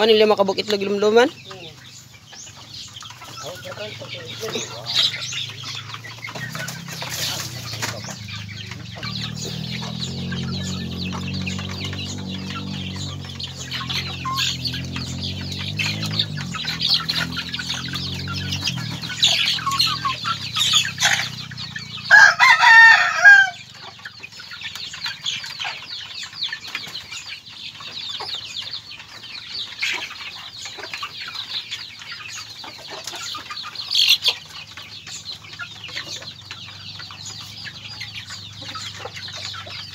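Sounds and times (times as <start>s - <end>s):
chickens clucking: 0.0s - 39.9s
rooster crowing: 22.1s - 23.7s.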